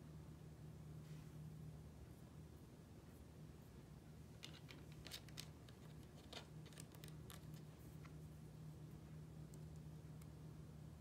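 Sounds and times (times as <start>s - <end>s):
steady low hum: 0.0s - 11.0s
small pieces clicking and tapping: 4.4s - 8.2s.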